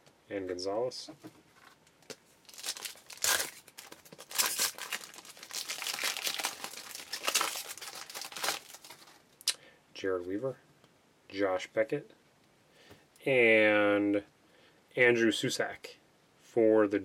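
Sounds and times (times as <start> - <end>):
wrapper tearing and crinkling: 2.4 - 9.2.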